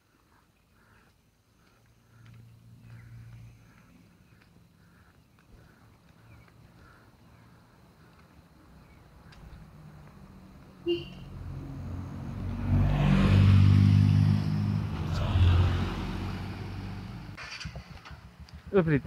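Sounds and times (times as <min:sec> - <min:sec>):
car engine driving past: 0:09.2 - 0:17.8.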